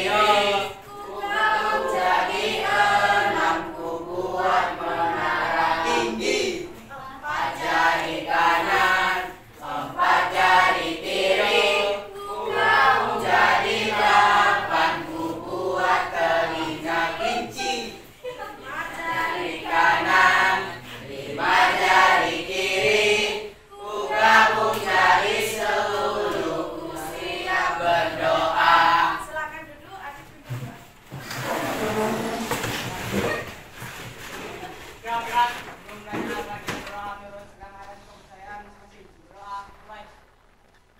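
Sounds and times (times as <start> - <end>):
students singing in unison: 0.0 - 29.4, 31.1 - 33.3.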